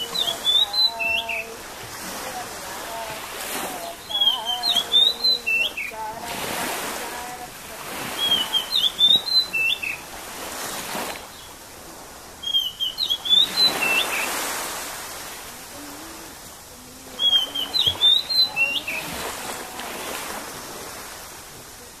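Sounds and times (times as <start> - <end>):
songbird whistling phrase: 0.0 - 1.6, 3.8 - 6.0, 8.0 - 10.1, 12.4 - 14.5, 17.1 - 19.6
small waves lapping: 0.0 - 22.0.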